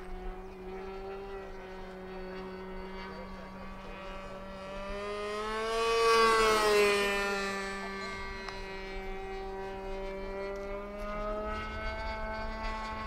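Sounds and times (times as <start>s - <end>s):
model plane engine buzzing: 0.0s - 13.0s.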